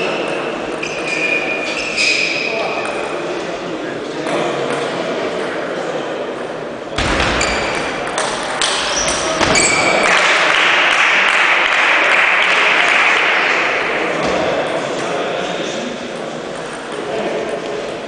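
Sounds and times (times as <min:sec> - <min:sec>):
spectators applauding: 0:09.8 - 0:13.9.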